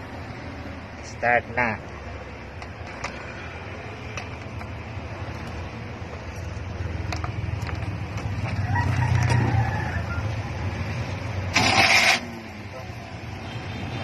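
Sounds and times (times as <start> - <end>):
distant rooster crowing: 8.3 - 10.8.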